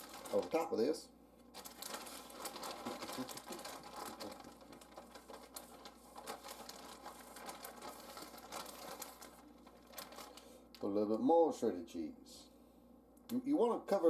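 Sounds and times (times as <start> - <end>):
plastic bag rustling: 0.0 - 0.9, 1.5 - 10.9.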